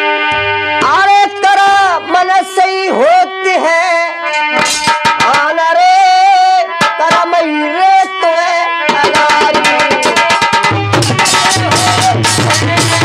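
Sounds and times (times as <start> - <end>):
harmonium melody: 0.0 - 13.0
hand drum rapid strokes: 4.6 - 5.5, 6.8 - 7.3, 8.9 - 13.0.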